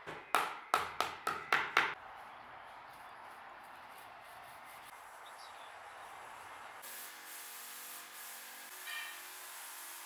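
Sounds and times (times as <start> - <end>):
mallet knocking on wooden board: 0.0 - 2.0.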